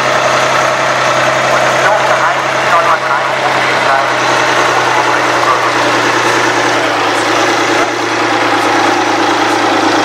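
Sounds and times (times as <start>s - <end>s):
tractor diesel engine under load: 0.0s - 10.0s.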